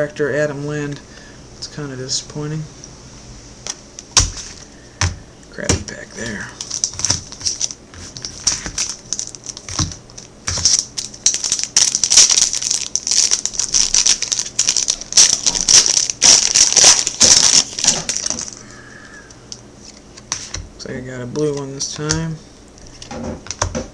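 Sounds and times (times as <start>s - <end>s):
plastic wrapper tearing and crinkling: 5.9s - 18.6s.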